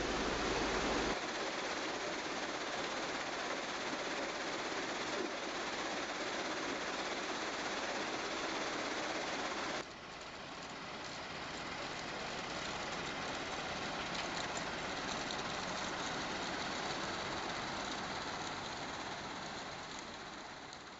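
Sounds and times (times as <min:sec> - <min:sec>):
recycling plant machinery din: 0:00.0 - 0:20.9.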